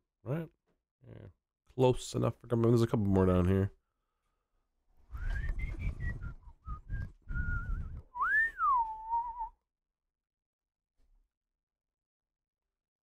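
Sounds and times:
person whistling a tune: 5.1 - 9.6.

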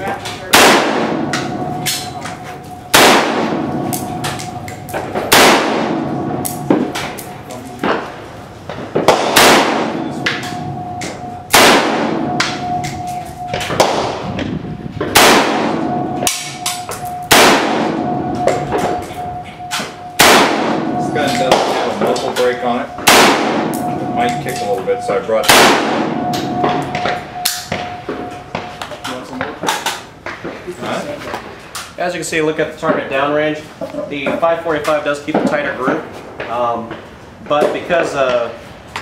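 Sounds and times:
distant gunshots: 0.5 - 1.7, 2.9 - 7.2, 8.8 - 12.8, 13.5 - 14.4, 15.0 - 28.6
loud rifle shots: 0.5 - 2.1, 2.9 - 4.4, 5.0 - 7.1, 8.9 - 10.7, 11.5 - 12.8, 13.7 - 14.2, 15.0 - 19.0, 20.2 - 22.1, 23.0 - 24.0, 25.4 - 27.8.

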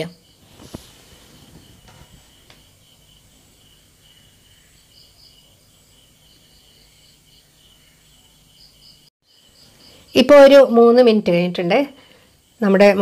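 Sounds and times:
insect chirping: 0.0 - 13.0.

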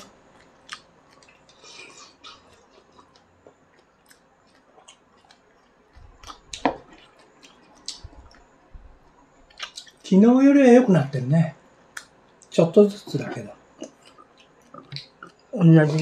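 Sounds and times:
chewing: 0.3 - 8.5, 9.5 - 10.1, 13.2 - 16.0.

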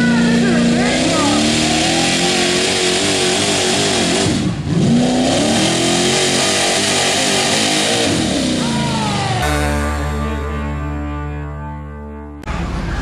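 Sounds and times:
pickup truck engine at high revs: 0.0 - 10.0.

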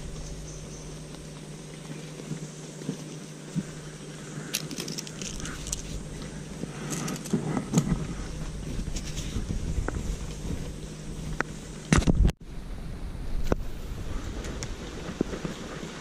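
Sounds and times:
cloth bag rustling in undergrowth: 0.0 - 11.8
steady low hum: 0.0 - 16.0.

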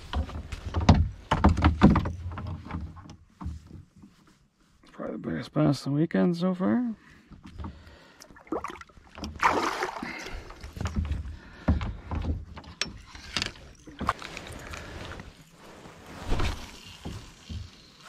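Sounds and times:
fish splashing into water: 8.4 - 10.6.

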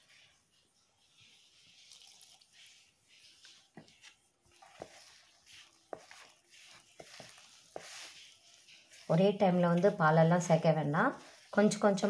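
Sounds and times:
fingers squishing dough: 3.3 - 9.9.

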